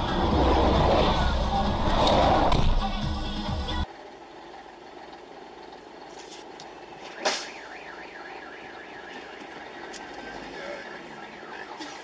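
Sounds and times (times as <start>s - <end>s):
road traffic from inside car: 0.0s - 12.0s
warbling electronic alarm tone: 7.4s - 12.0s.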